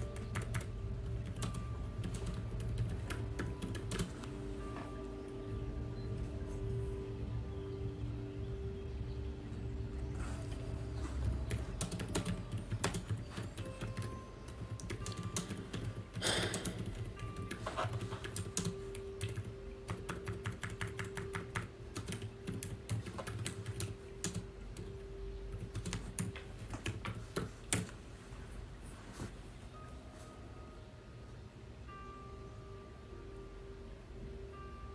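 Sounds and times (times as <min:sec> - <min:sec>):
typing on laptop keyboard: 0:00.0 - 0:04.3, 0:10.2 - 0:28.0.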